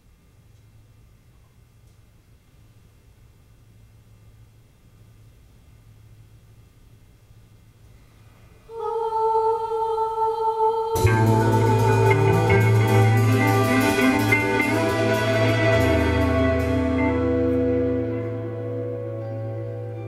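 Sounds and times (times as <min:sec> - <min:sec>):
low stage hum: 0:00.0 - 0:20.0
person singing: 0:08.7 - 0:20.0
drum strikes: 0:11.0 - 0:18.0
held note: 0:11.0 - 0:20.0
low bass: 0:11.0 - 0:20.0.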